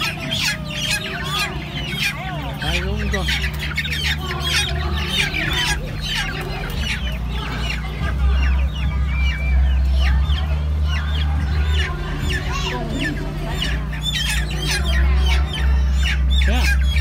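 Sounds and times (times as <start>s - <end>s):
chicks peeping and clucking: 0.0s - 17.0s
steady low hum: 0.0s - 17.0s.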